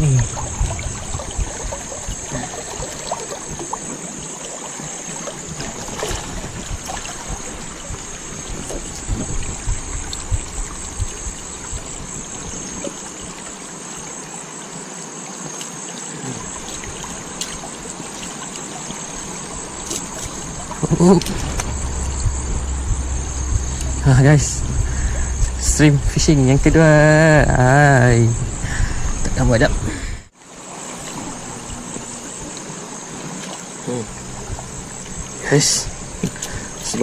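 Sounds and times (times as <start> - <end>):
stream water trickling: 0.0 - 37.0.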